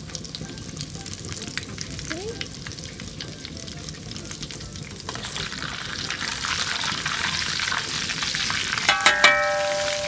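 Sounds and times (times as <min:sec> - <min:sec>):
butter sizzling in a wok: 0:00.0 - 0:10.0
metal ladle moving in wok: 0:08.9 - 0:10.0.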